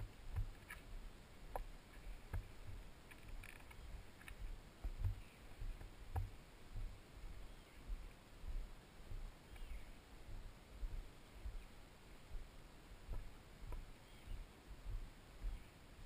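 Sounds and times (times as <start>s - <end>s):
footsteps on paved path: 0.0s - 11.6s, 13.1s - 15.6s.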